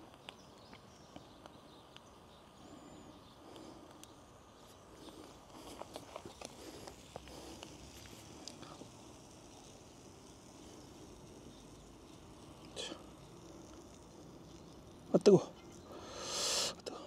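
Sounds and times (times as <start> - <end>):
faint bird chirps: 0.0 - 5.2.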